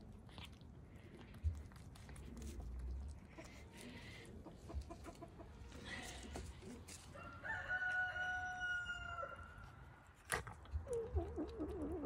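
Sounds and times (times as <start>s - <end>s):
rooster crowing: 7.1s - 9.5s.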